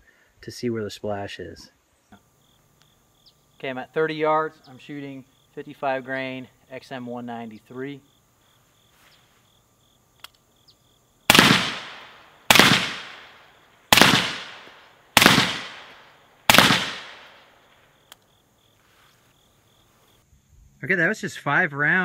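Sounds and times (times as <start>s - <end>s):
rifle shots with echo: 11.3s - 17.5s.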